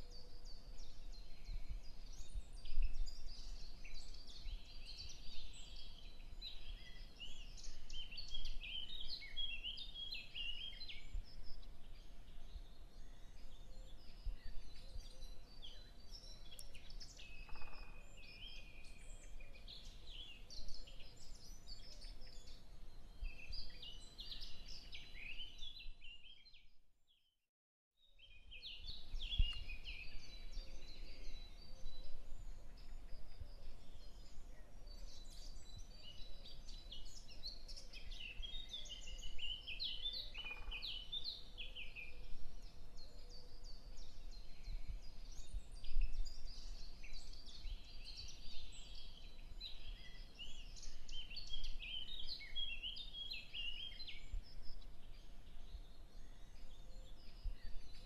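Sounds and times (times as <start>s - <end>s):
small birds chirping: 0.0s - 26.8s, 28.0s - 58.0s.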